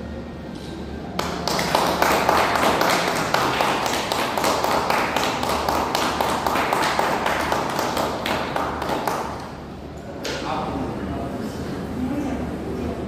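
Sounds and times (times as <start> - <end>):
people clapping: 1.1 - 9.6.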